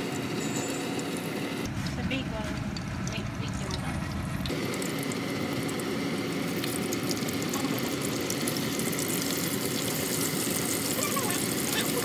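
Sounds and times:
grease sizzling in a frying pan: 4.4s - 12.0s.

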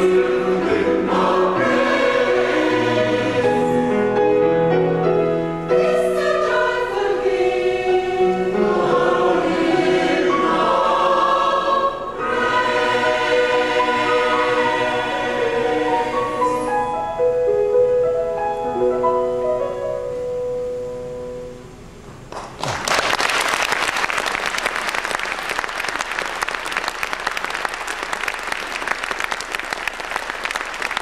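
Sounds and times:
choir singing with piano: 0.0s - 20.8s
audience applause: 22.3s - 31.0s.

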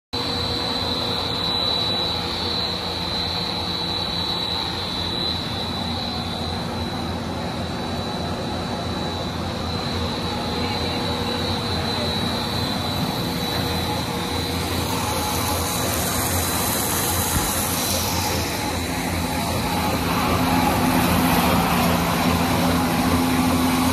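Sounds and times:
machine drone with high whine: 0.2s - 23.9s.

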